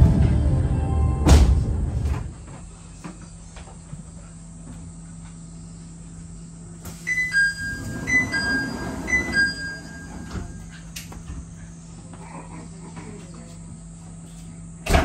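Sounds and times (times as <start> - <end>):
cable car hum and rumble: 0.0 - 4.3, 6.8 - 11.9.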